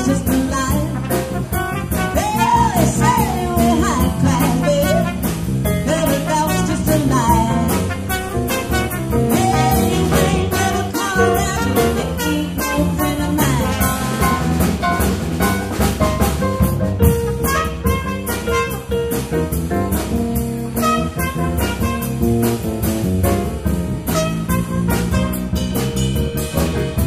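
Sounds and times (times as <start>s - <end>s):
drum kit beat: 0.0s - 27.0s
trumpet playing: 0.9s - 3.1s, 4.4s - 5.4s, 6.1s - 16.2s, 17.0s - 19.3s, 20.8s - 22.6s, 24.0s - 25.9s
held brass notes: 1.0s - 2.8s, 6.2s - 16.0s, 17.0s - 19.2s, 20.7s - 22.6s, 24.0s - 25.8s.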